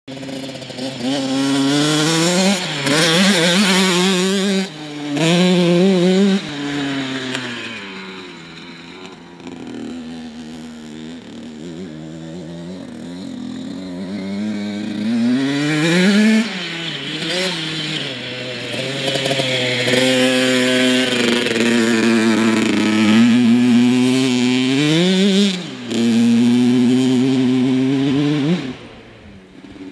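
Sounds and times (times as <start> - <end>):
dirt bike engine revving: 0.1 - 29.9.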